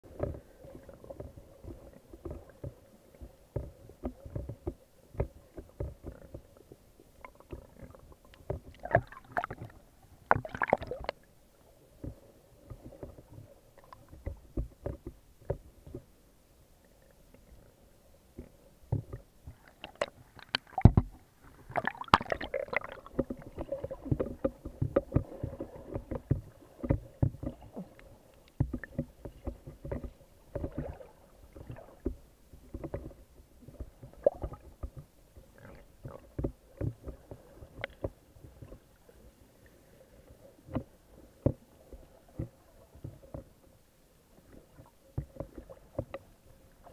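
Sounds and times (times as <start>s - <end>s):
underwater clicks and knocks: 0.1s - 11.3s, 12.0s - 16.1s, 18.3s - 38.9s, 40.7s - 43.8s, 44.4s - 46.9s
water bubbling: 8.7s - 11.2s, 19.5s - 28.1s.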